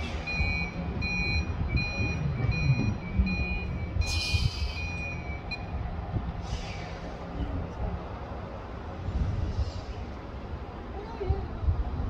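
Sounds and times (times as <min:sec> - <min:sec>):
reversing alarm beeping: 0:00.0 - 0:05.8.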